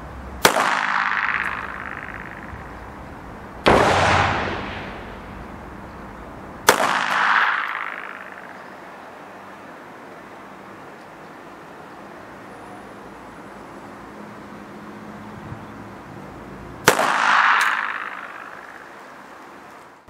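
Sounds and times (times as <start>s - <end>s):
pistol shots echoing: 0.4s - 2.7s, 3.6s - 5.4s, 6.6s - 8.9s, 16.8s - 19.1s.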